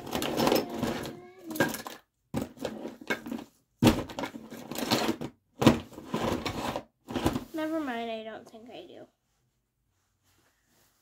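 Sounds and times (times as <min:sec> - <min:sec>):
plastic toys rustling and knocking: 0:00.0 - 0:08.0.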